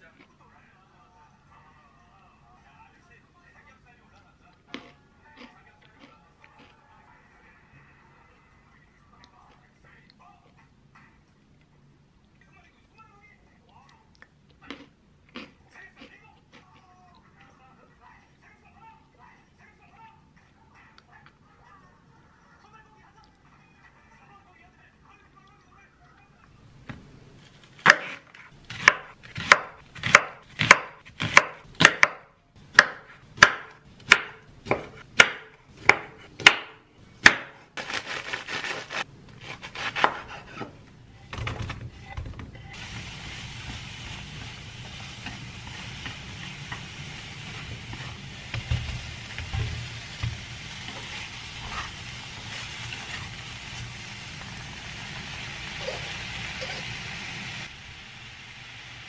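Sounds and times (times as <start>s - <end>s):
knife chopping on wooden board: 27.8s - 37.6s, 39.4s - 40.7s
vegetables sizzling in a pan: 42.8s - 59.0s.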